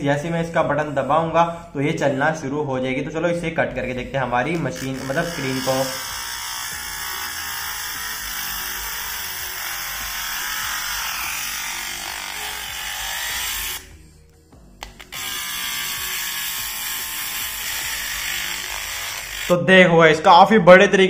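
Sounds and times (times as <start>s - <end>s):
small motor tool grinding: 4.5s - 14.0s, 14.8s - 19.6s.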